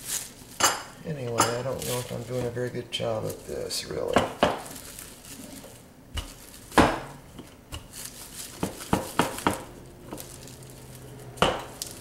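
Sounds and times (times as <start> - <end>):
rolling pin rolling over meat: 0.0 - 12.0
rolling pin knocking on counter: 6.2 - 7.1, 8.6 - 9.7, 11.4 - 11.8.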